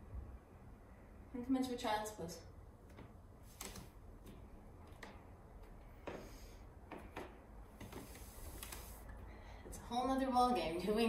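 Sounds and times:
bare footsteps on wooden floor: 0:04.2 - 0:08.8.

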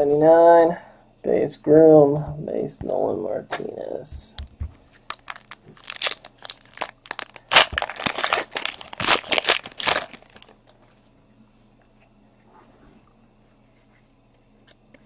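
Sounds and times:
card wrapper tearing and crinkling: 0:05.0 - 0:10.6.

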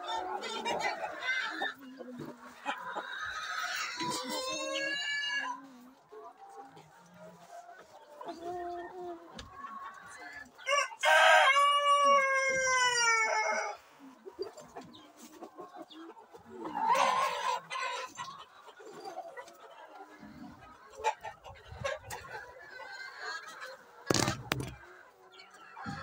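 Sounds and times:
chickens clucking: 0:00.0 - 0:26.0.

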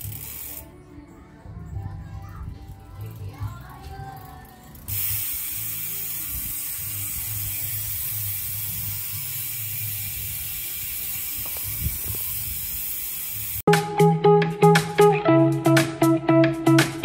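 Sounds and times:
bicycle freehub ratcheting: 0:00.0 - 0:00.7, 0:03.0 - 0:13.7.

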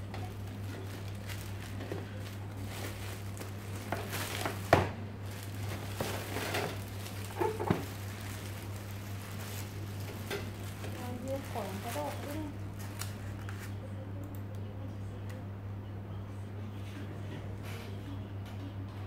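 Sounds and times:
plastic bag crinkling: 0:00.0 - 0:13.7
steady low hum: 0:00.0 - 0:19.0.

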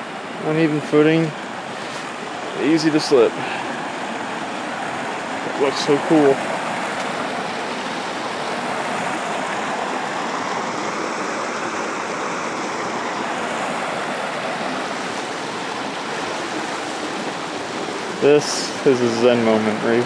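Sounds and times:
water rushing over rocks: 0:00.0 - 0:20.0.

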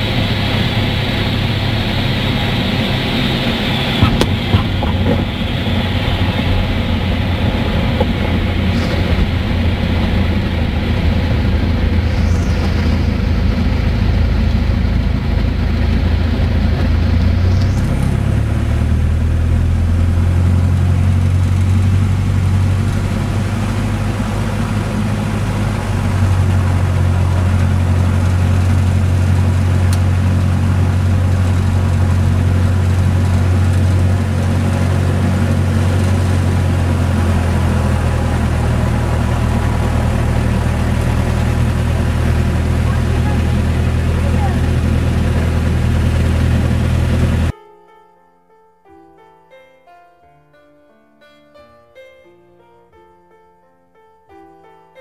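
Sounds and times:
light aircraft engine and propeller: 0:00.0 - 0:47.5.

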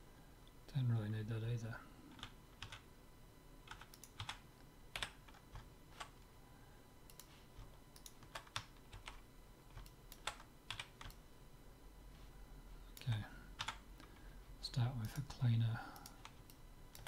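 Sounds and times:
keyboard and mouse clicks: 0:03.7 - 0:04.4, 0:16.0 - 0:17.0.

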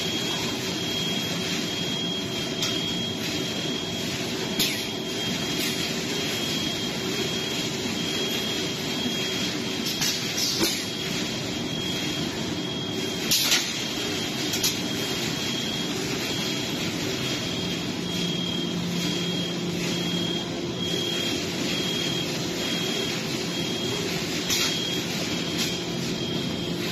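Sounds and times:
machinery noise: 0:00.0 - 0:26.9.

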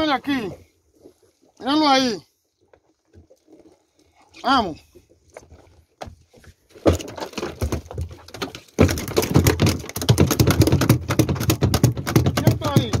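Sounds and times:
fish tail slapping boat floor: 0:05.4 - 0:13.0.

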